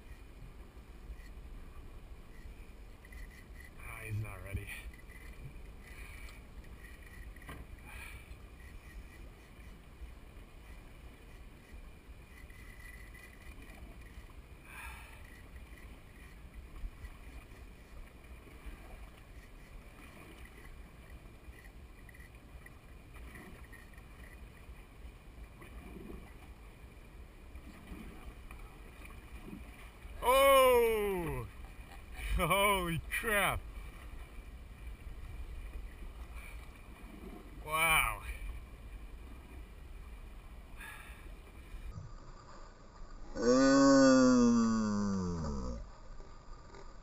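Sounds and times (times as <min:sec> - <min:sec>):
faint water: 0:00.0 - 0:47.0
boat engines idling: 0:29.9 - 0:33.9.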